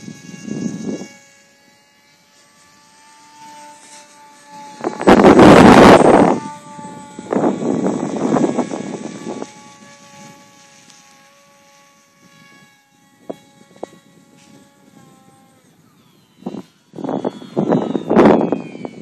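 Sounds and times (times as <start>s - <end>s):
wind gusts on microphone: 0.0s - 1.2s, 4.5s - 10.7s, 12.2s - 19.0s
model airplane motor whine: 0.0s - 19.0s.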